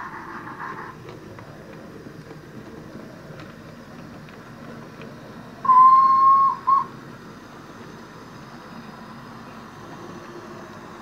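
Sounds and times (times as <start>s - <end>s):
model train running on track: 0.0s - 11.0s
steam locomotive whistle: 5.6s - 6.9s.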